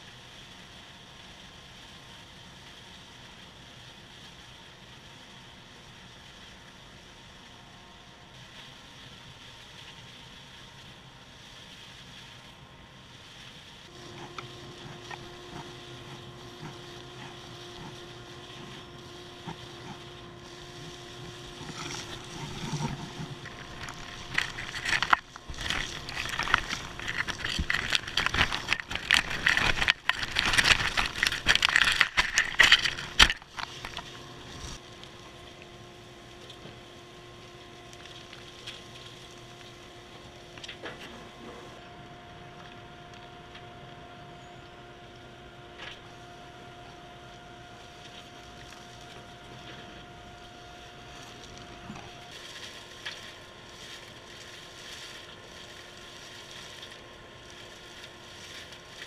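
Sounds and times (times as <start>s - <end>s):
dust collector running: 6.6s - 59.0s
wood shavings rattling through hose: 8.5s - 35.3s, 47.2s - 59.0s.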